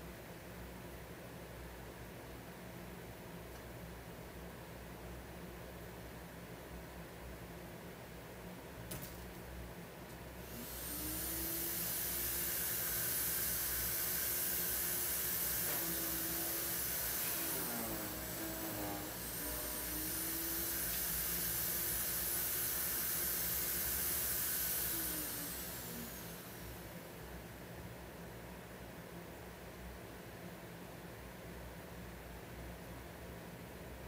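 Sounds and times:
motor-driven machine running: 10.4s - 27.1s.

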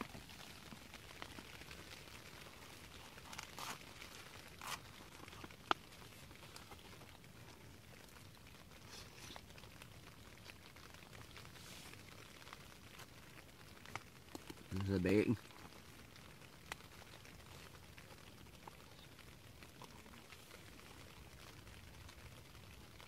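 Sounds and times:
faint rustles: 0.0s - 23.0s
light rain on a tent: 0.0s - 23.0s
spoon scraping foil pouch: 3.1s - 5.5s.

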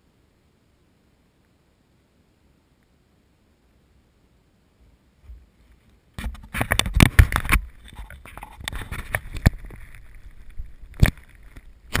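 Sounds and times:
rubbing handling noise: 5.2s - 12.0s.

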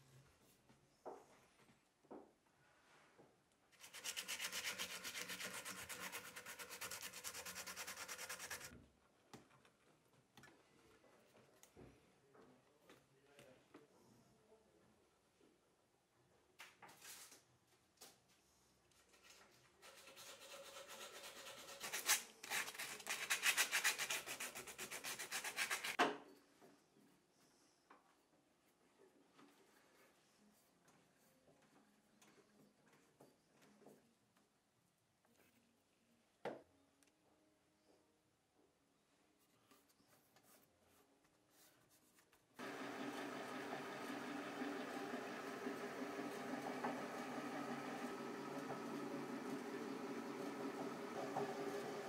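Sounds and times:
rapid sanding on wooden handle: 3.8s - 8.7s
sandpaper rubbing on handle: 3.8s - 8.7s, 19.9s - 26.0s.

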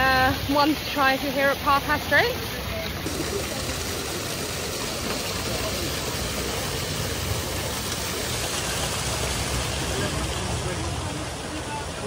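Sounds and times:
water jets spraying: 0.0s - 12.0s.

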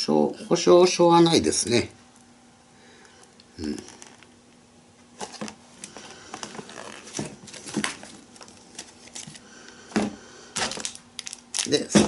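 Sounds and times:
packaging crinkling: 5.2s - 9.5s, 10.6s - 12.0s.

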